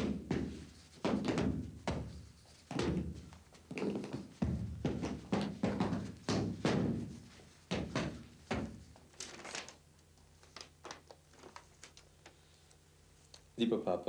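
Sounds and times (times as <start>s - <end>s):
paper rustling: 9.1s - 9.8s, 10.4s - 12.4s.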